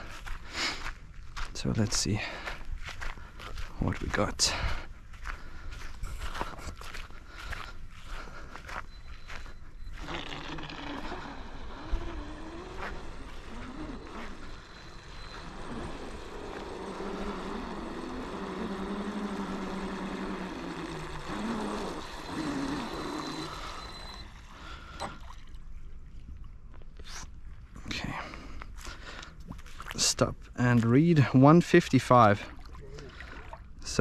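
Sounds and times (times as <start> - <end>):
electric motor and propeller whining: 8.7 - 25.2.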